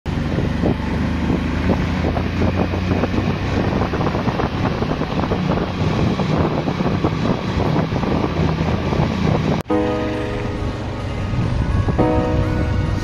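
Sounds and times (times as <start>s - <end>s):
motorcycle engine running: 0.1s - 9.6s
wind buffeting microphone: 0.1s - 13.0s.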